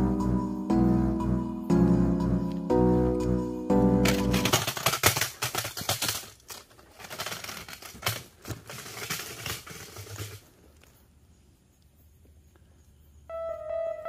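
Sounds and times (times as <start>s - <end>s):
pole clattering through leaves: 4.1s - 10.9s.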